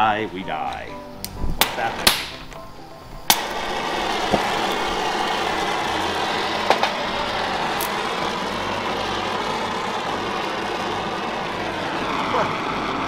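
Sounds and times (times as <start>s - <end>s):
torch flame hissing: 0.0s - 13.0s
welding torch lighting pop: 0.7s - 2.6s, 3.2s - 11.7s.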